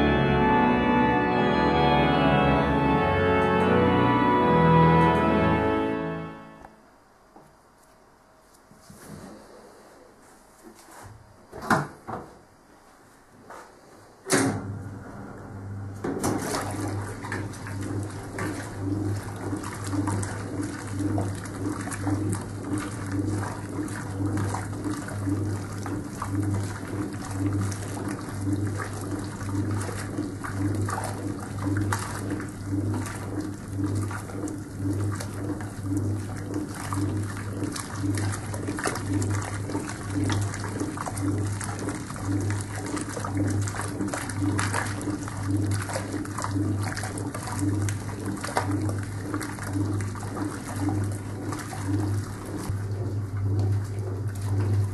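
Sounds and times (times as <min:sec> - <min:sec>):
washing machine agitating: 0:14.4 - 0:54.9
water sloshing: 0:16.1 - 0:54.9.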